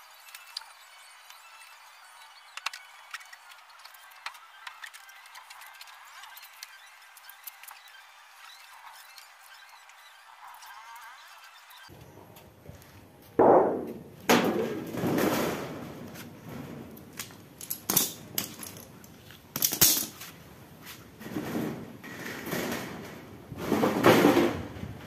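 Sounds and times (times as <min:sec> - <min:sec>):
sheet-metal panel banging: 0:13.4 - 0:16.0.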